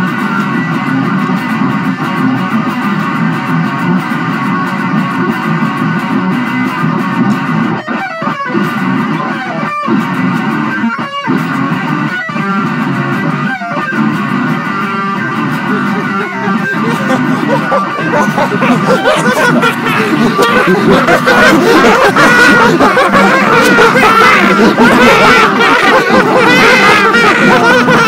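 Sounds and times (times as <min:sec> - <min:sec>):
bass guitar: 0:00.0 - 0:28.0
electric guitar: 0:00.0 - 0:28.0.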